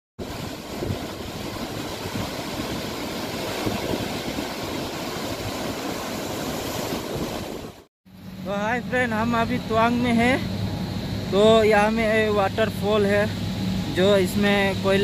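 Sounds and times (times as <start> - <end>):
waterfall rushing: 0.2 - 7.9.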